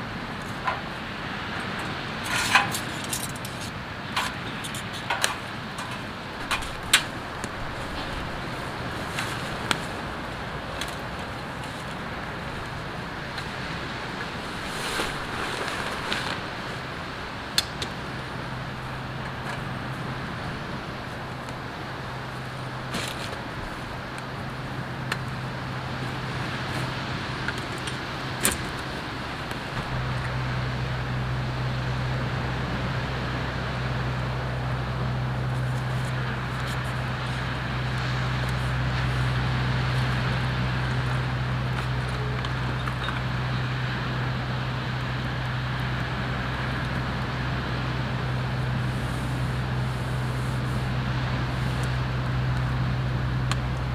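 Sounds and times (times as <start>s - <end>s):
low engine hum: 0.0s - 53.9s
camp gear clicks and knocks: 2.2s - 8.4s.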